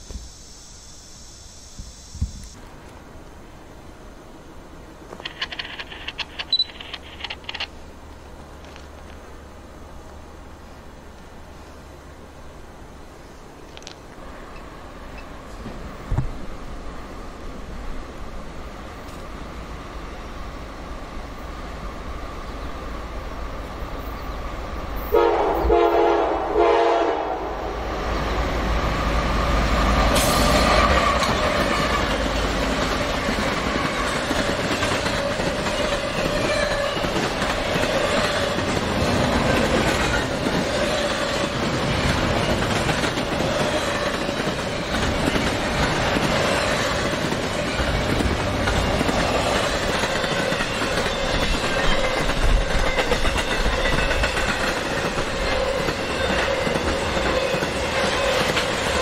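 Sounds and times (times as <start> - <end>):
wheels clacking over rail joints: 5.1 - 7.8, 28.9 - 59.0
freight train rumbling past: 14.2 - 59.0
train horn: 25.0 - 28.0, 30.2 - 32.3.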